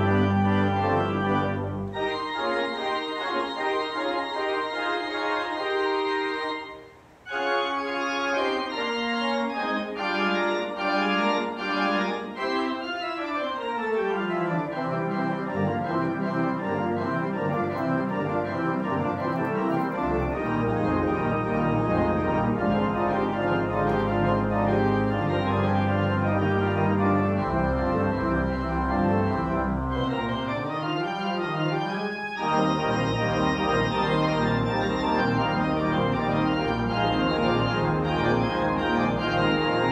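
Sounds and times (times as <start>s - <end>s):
deep organ pedal bass notes: 0.0s - 39.9s
organ playing chords: 0.0s - 39.9s.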